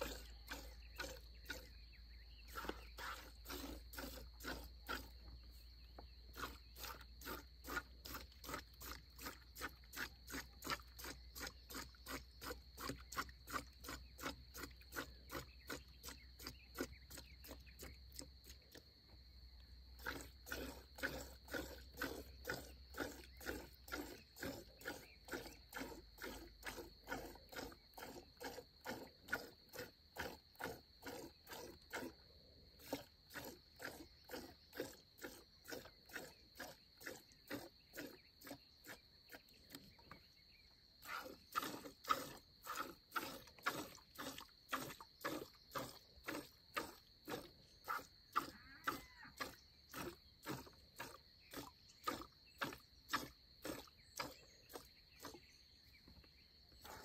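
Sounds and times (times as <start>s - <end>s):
milk squirting into plastic bucket: 0.0s - 18.9s, 19.9s - 40.3s, 41.0s - 55.6s, 56.2s - 57.0s.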